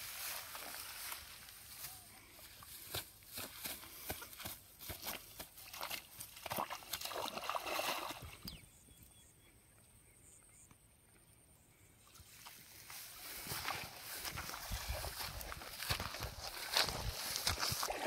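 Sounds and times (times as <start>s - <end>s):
person moving through grass: 0.0s - 6.4s, 12.2s - 18.0s
fish flapping in wet grass: 12.4s - 18.0s.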